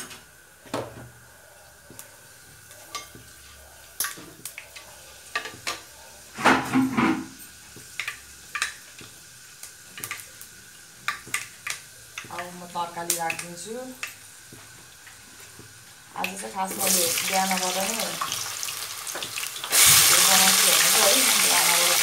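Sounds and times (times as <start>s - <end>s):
seeds sizzling in hot oil: 7.3s - 22.0s
sharp pops and crackles: 7.8s - 16.4s.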